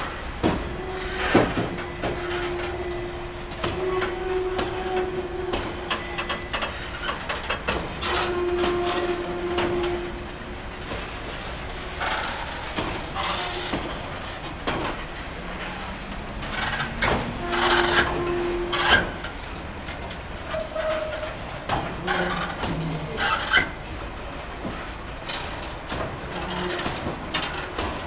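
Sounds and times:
freight train rumbling: 0.0 - 28.0
wagons knocking and clanking: 0.0 - 28.0
wheel squeals: 0.7 - 10.2, 16.4 - 19.4, 20.4 - 21.4, 22.0 - 23.9.

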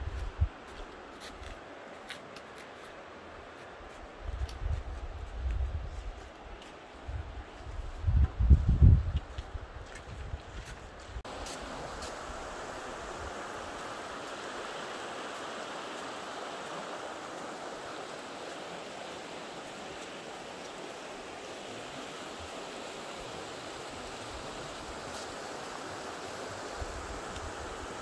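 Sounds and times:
river rushing: 11.2 - 28.0.

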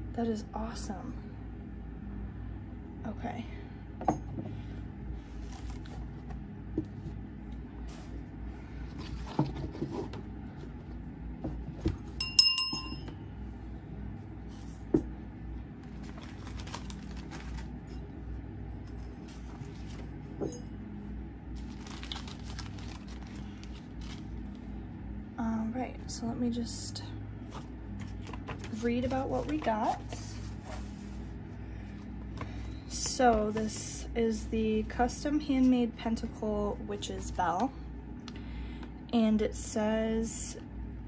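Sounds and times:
short ringing clink: 12.2 - 13.1
packets rustling: 15.9 - 18.0, 21.6 - 24.6.

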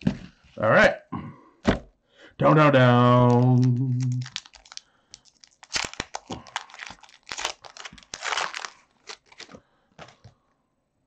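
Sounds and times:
foil wrapper tearing and crinkling: 3.2 - 10.2.

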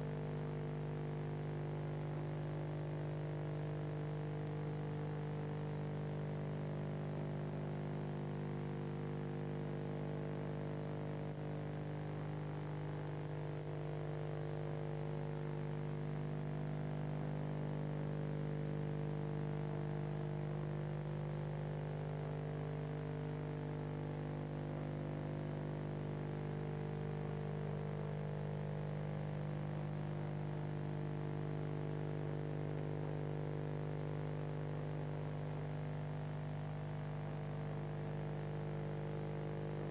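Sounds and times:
electrical hum: 39.5 - 39.9.

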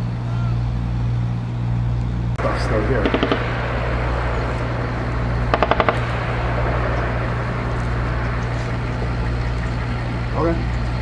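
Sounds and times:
steady low rumble: 0.0 - 11.0
distant machine gun burst: 2.4 - 10.4.

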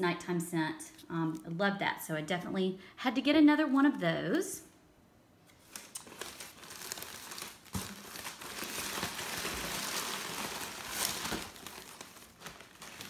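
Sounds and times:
packing material crinkling: 5.5 - 13.0.

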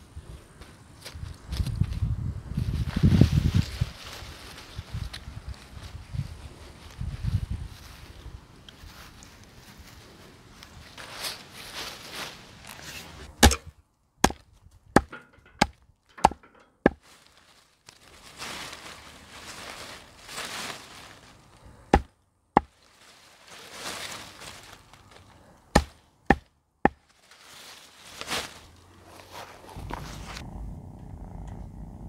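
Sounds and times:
leaves rustling: 0.0 - 14.4, 16.2 - 26.1, 26.9 - 31.9
hatchet chopping on wooden stump: 13.4 - 14.4, 15.0 - 17.0, 21.9 - 22.7, 25.7 - 27.0.

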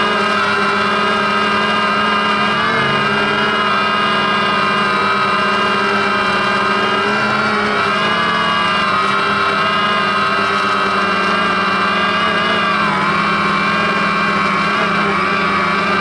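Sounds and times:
drone propellers whining: 0.0 - 16.0.

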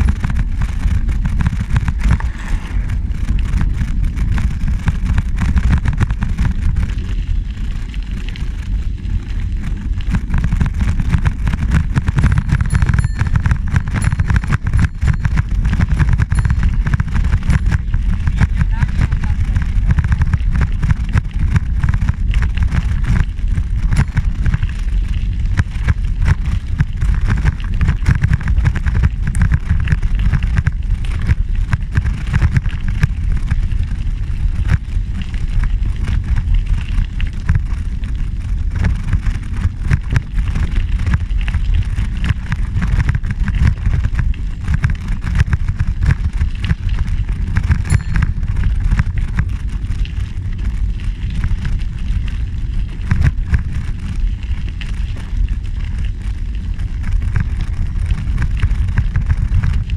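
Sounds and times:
tyres crackling on gravel: 0.0 - 59.9
wind buffeting microphone: 0.0 - 59.9.

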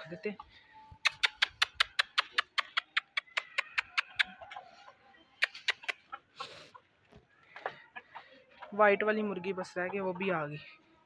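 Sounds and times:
chickens clucking softly: 0.0 - 10.7
sharp clicks: 1.0 - 4.3.

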